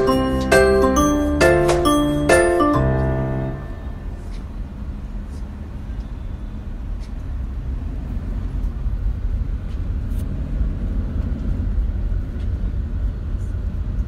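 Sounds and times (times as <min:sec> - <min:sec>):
car engine and road noise: 0:03.6 - 0:14.0.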